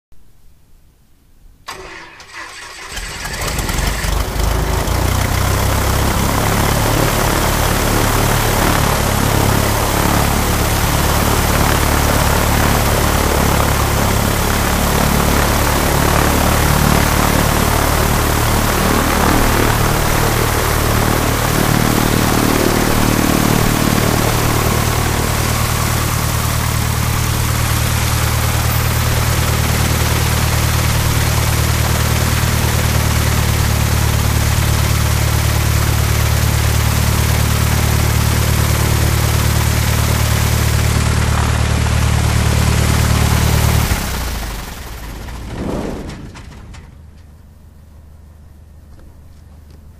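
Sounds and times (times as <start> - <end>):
light aircraft engine running: 1.7 - 49.9.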